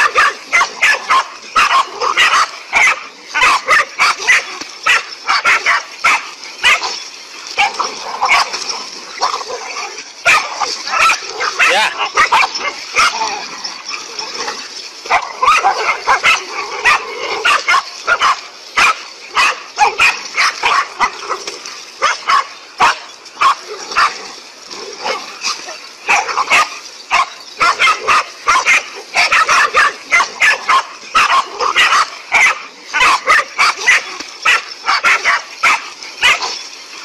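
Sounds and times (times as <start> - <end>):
dogs barking rapidly: 0.0 - 36.8.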